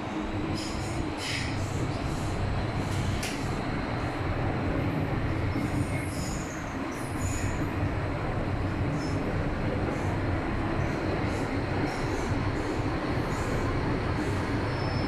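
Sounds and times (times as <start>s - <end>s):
train rumbling through tunnel: 0.0s - 15.0s
high-pitched train squeals: 0.5s - 2.3s, 5.6s - 7.7s, 11.8s - 15.0s.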